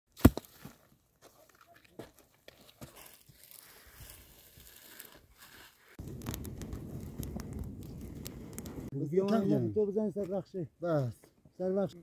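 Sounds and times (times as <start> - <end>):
dry shrubs crunching and crackling: 0.2 - 8.9.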